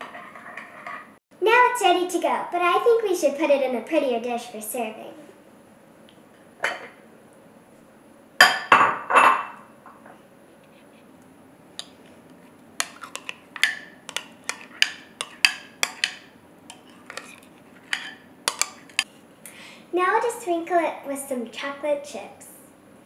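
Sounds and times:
spoon scraping glass bowl: 12.8 - 19.1.

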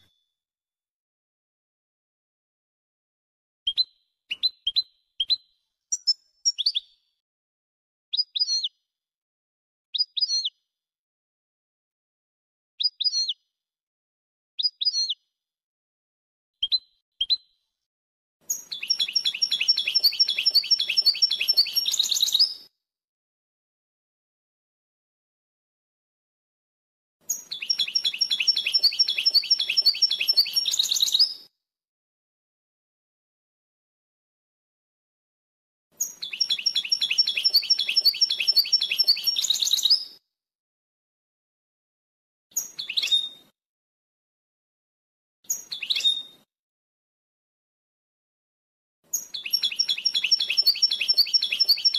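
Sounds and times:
goldfinch singing: 18.5 - 22.6, 27.3 - 31.4, 36.0 - 40.0, 49.2 - 51.9.

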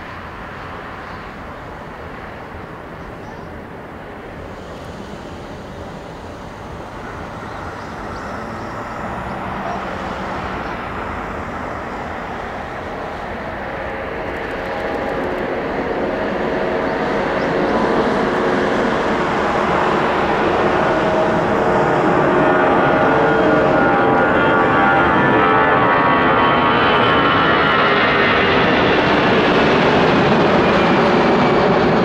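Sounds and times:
jet engines at take-off: 0.0 - 32.0
steady engine tones: 0.1 - 27.2.

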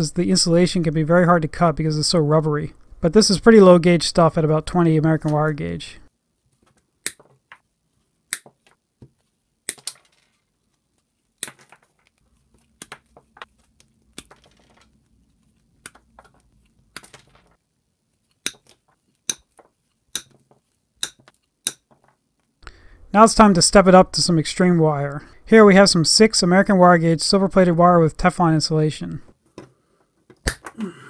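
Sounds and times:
handling rustle: 6.4 - 22.4.

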